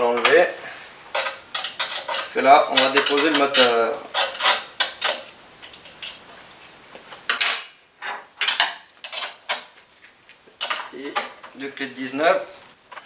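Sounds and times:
metal spanners clinking: 1.1 - 5.3, 7.3 - 9.7.

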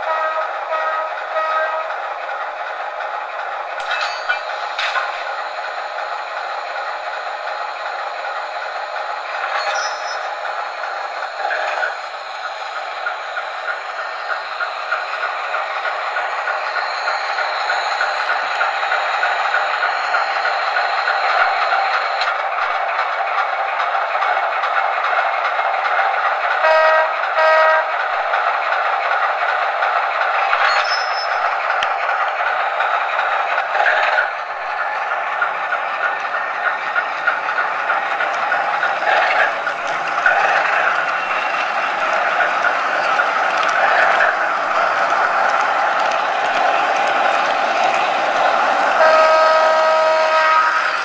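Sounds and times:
model train clatter and rumble: 0.0 - 51.0
sharp clicks: 35.9 - 49.0.

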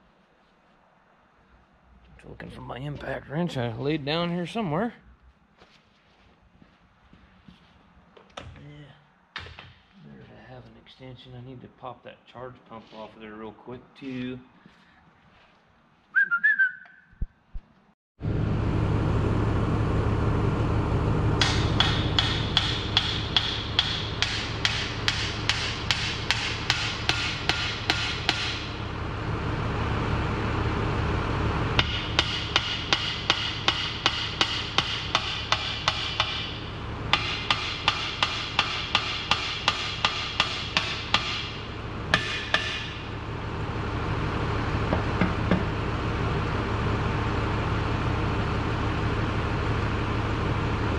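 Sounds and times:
loud machine noise with hum: 18.2 - 50.9.

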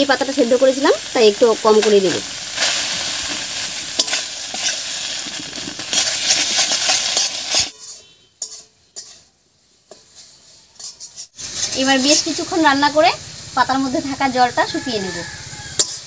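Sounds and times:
paste sizzling in hot oil: 0.0 - 16.0
spatula scraping a pan: 2.5 - 12.6, 15.2 - 16.0.

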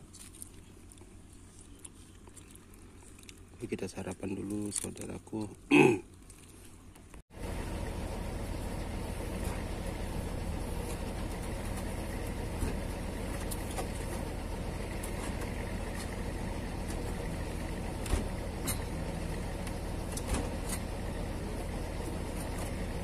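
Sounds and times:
truck engine idling: 7.4 - 23.0.

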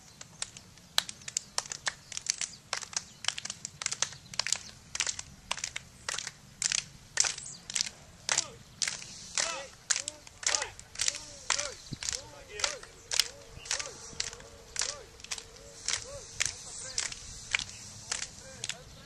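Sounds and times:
group of people clapping: 0.1 - 18.8
voices calling out: 3.8 - 19.0.

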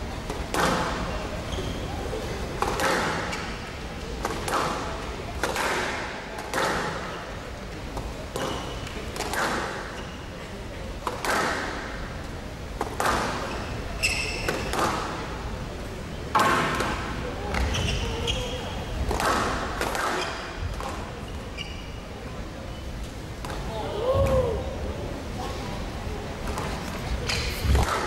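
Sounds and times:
squash ball hits echoing: 0.3 - 1.1, 2.6 - 3.4, 4.2 - 7.1, 11.0 - 12.0, 12.8 - 13.5, 14.4 - 15.2, 19.1 - 21.1, 27.4 - 28.0.

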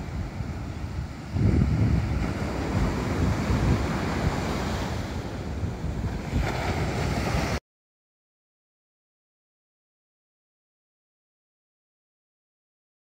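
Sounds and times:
ocean surf breaking on beach: 0.0 - 7.6
wind buffeting microphone: 0.0 - 7.6.

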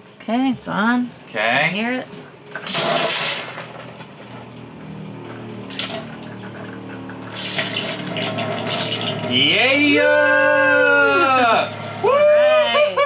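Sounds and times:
water pump humming: 2.6 - 12.8
water gushing from faucet: 5.7 - 9.4, 11.5 - 12.1.

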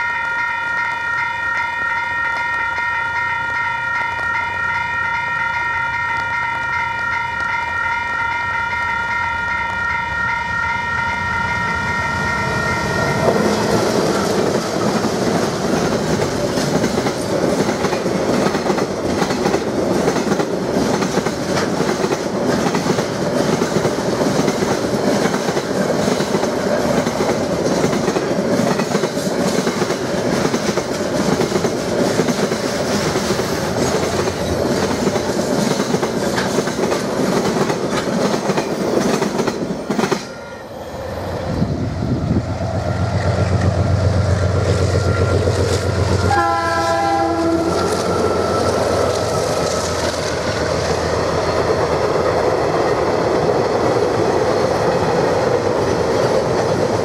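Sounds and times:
diesel locomotive engine droning: 0.0 - 57.0
train wheels clattering over rail joints: 13.2 - 40.3
train horn blast: 44.5 - 50.0.

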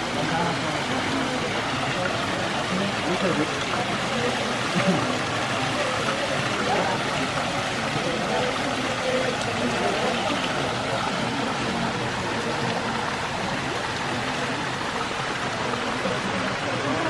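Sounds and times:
faint voices: 0.0 - 17.0
water pouring into a pool: 0.0 - 17.0.

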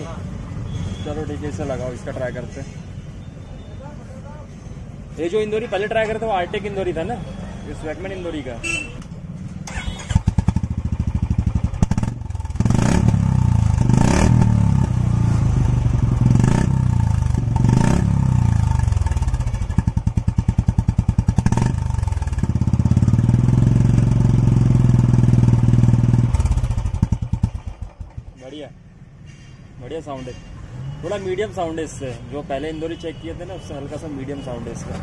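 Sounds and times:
motorcycle engine idling and revving: 9.2 - 28.7.

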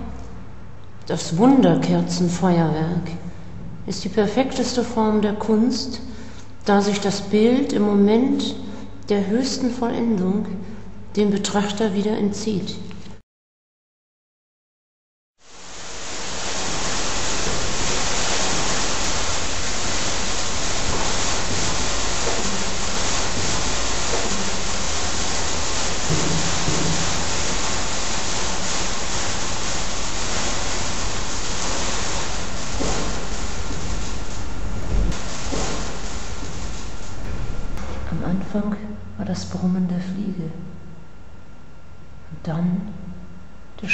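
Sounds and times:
dense rain-like hiss: 15.4 - 39.1.

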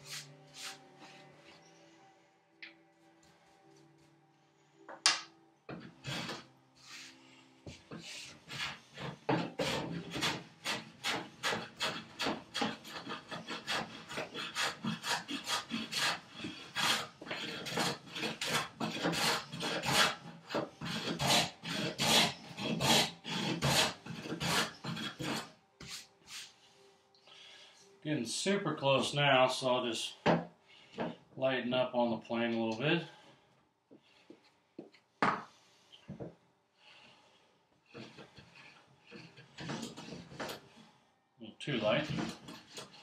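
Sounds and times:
hand plane shaving wood: 5.7 - 7.1, 7.7 - 26.1, 37.9 - 40.7, 41.8 - 43.0.

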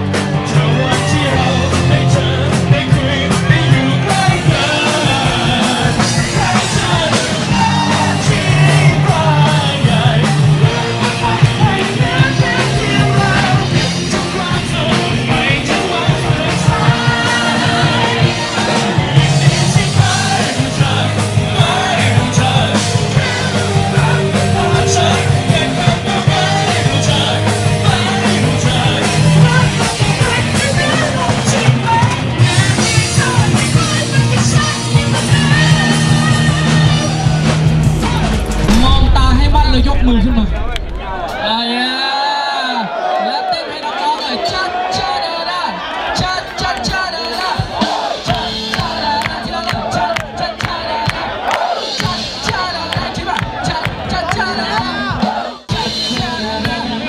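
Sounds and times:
man singing into a microphone: 0.0 - 37.4
electric guitar: 0.0 - 41.4
drums: 0.0 - 43.2, 43.8 - 57.0.

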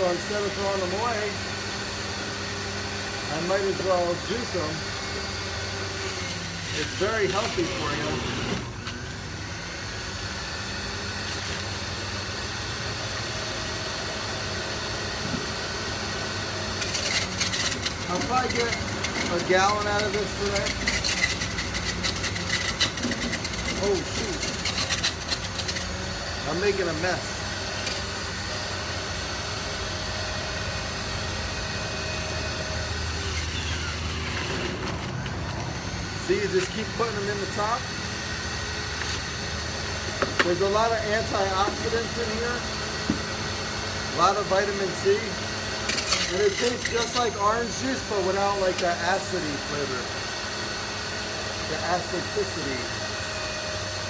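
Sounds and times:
juicer motor humming: 0.0 - 54.0
fruit being shredded: 5.9 - 9.1, 16.6 - 27.0.

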